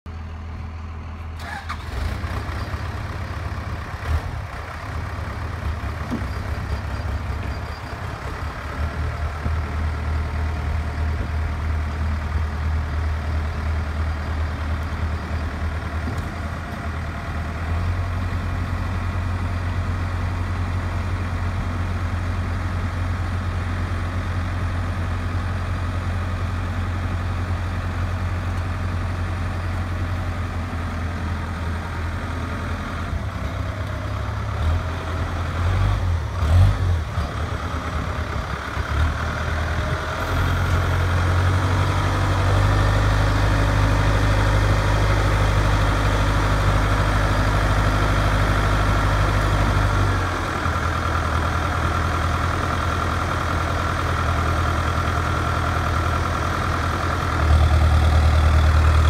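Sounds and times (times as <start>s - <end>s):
engine running with low rumble: 0.1s - 59.0s.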